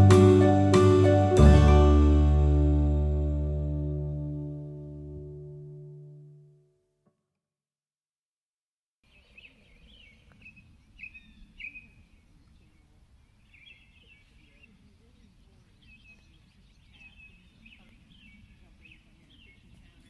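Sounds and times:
small birds chirping: 9.0s - 20.0s.

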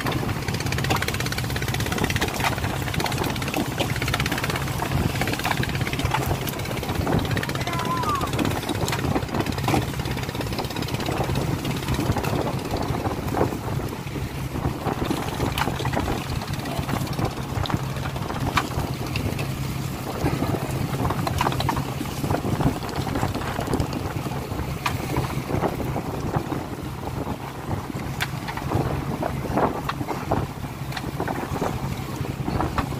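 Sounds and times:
boat engine humming: 0.0s - 32.9s
water splashing: 0.0s - 32.9s
wind on microphone: 0.0s - 32.9s.

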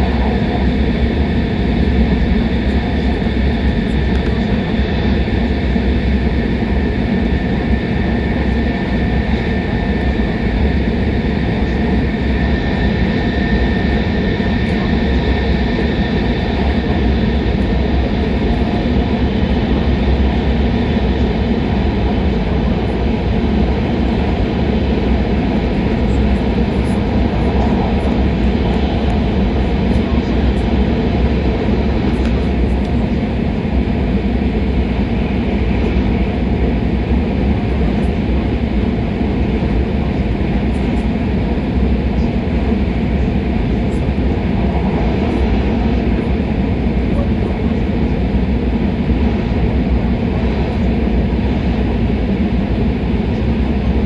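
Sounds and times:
train rumble inside cabin: 0.0s - 54.0s.

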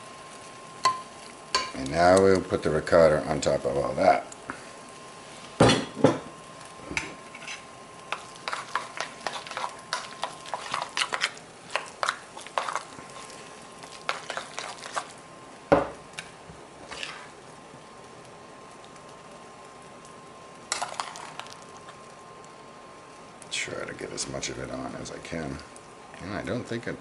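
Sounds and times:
spoon scraping a metal bowl: 7.3s - 7.7s
bowls knocking on countertop: 15.7s - 16.0s.

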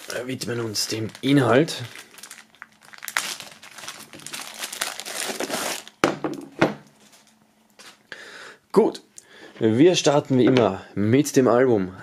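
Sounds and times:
plastic bag crinkling: 0.0s - 6.0s.

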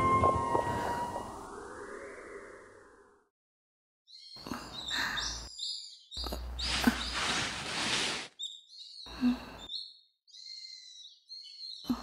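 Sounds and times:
small birds chirping: 4.1s - 12.0s.

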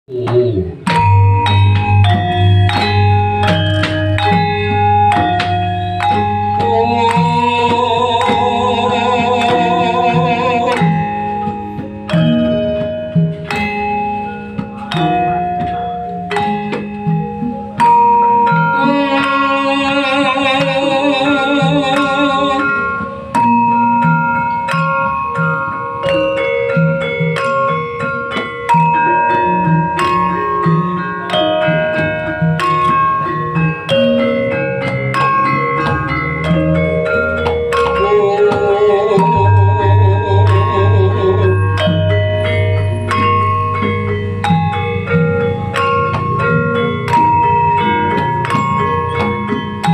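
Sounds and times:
deep low tone: 0.1s - 5.0s, 38.0s - 42.8s
metal keys struck with mallets: 0.1s - 49.9s
wavering held melody: 0.1s - 49.9s.

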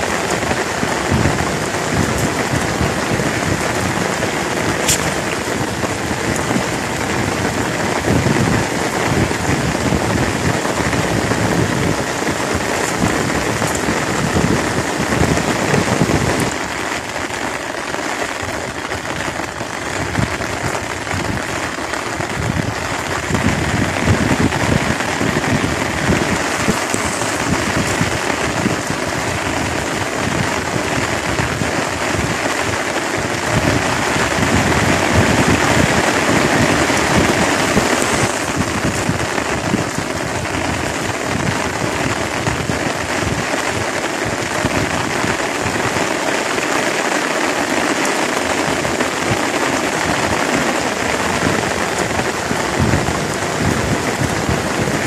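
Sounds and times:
rain falling on pond and grass: 0.0s - 55.0s.

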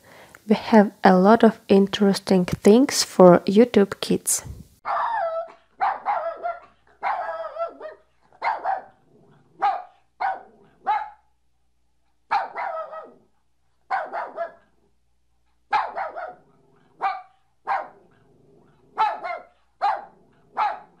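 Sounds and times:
dog barking: 4.9s - 9.0s, 9.6s - 11.3s, 12.3s - 13.2s, 13.9s - 14.7s, 15.7s - 18.2s, 18.9s - 21.0s.

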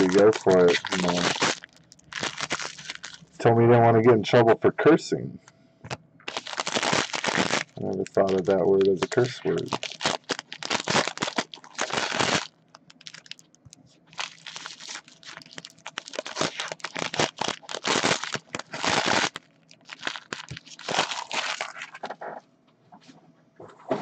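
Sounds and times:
card pack wrappers crinkling and tearing: 0.0s - 3.3s, 6.3s - 22.1s.

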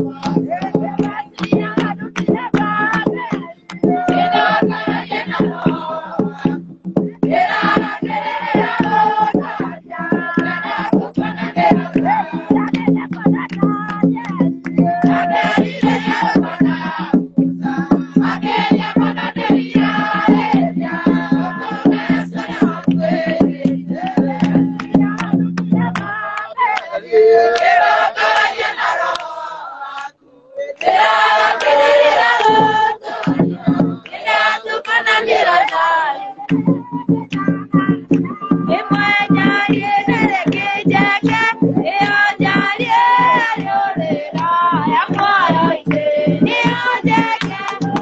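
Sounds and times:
congregation singing a hymn: 0.0s - 6.6s, 7.2s - 13.4s, 14.3s - 36.5s, 38.4s - 48.0s
rhythmic hand-clapping: 0.0s - 48.0s.

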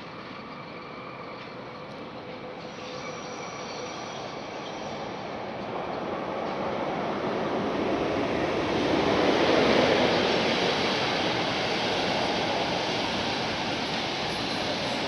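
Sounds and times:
train rolling past: 0.0s - 15.0s.

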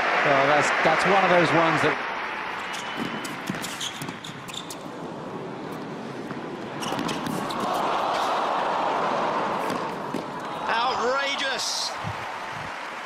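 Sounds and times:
crowd noise: 0.0s - 13.0s
tennis ball bouncing on hard court: 2.7s - 4.8s, 6.2s - 7.8s, 9.6s - 10.4s
tennis ball struck by rackets: 6.3s - 7.8s.

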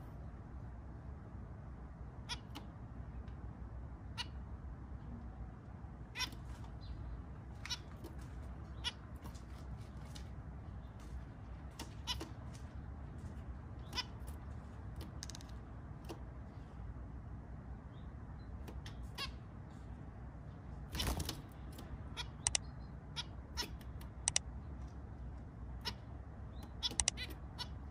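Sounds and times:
low background rumble: 0.0s - 27.9s
finches beeping calls: 8.6s - 9.4s, 13.8s - 14.4s.

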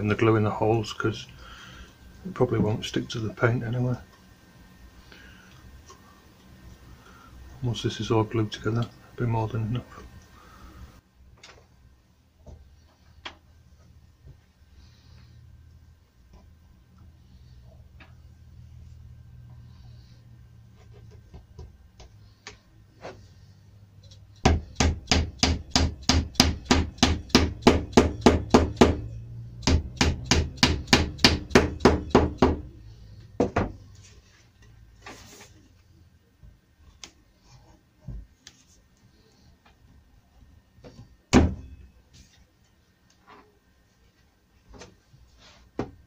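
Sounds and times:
hammer striking wooden dowel: 24.4s - 32.7s.

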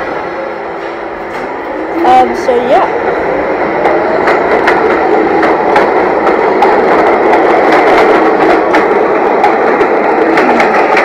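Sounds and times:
subway train rolling past: 0.0s - 11.0s.

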